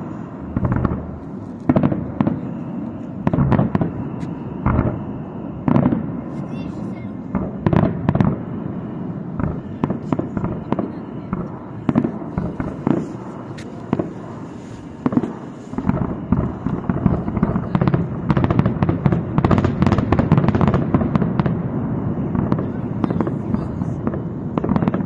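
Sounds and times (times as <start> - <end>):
firework bangs and crackling: 0.0 - 25.0.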